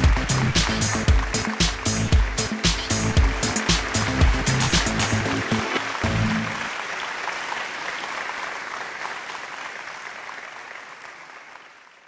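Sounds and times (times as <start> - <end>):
low music notes: 0.0 - 6.7
audience applause: 0.0 - 12.0.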